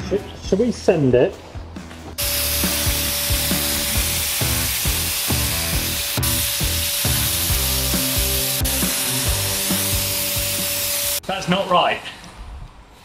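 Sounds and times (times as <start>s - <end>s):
background music with a beat: 1.6s - 11.2s
paint sprayer hissing and whining: 2.2s - 11.2s.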